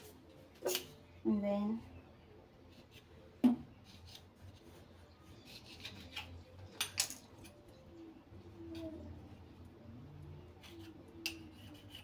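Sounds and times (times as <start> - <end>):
knife scraping on stone countertop: 10.6 - 12.0.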